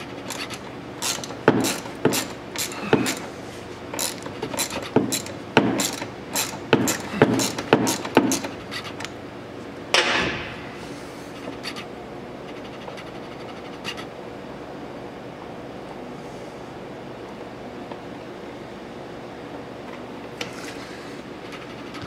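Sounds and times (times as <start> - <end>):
socket ratchet clicking: 0.2 - 3.3, 4.0 - 9.1.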